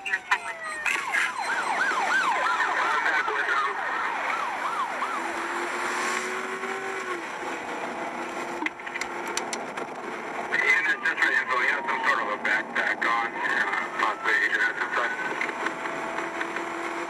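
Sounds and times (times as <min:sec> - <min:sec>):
police siren yelp: 0:00.0 - 0:05.9, 0:10.5 - 0:16.0
car engine and road noise: 0:00.0 - 0:17.0.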